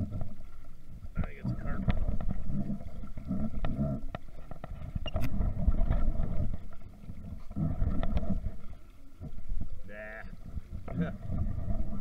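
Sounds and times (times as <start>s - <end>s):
clicks and knocks of rod and reel: 0.0s - 12.0s
microphone handling rumble: 1.0s - 8.6s.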